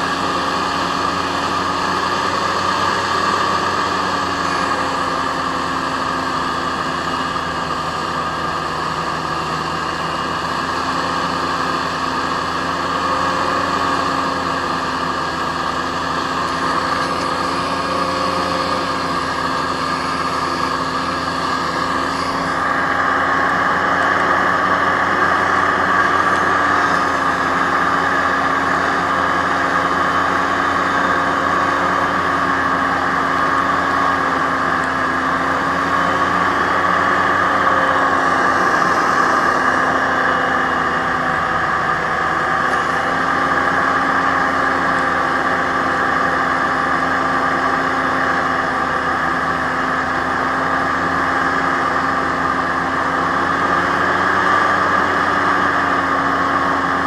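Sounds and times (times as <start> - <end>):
hovercraft engine drone: 0.0 - 57.0
rushing noise: 13.0 - 46.2.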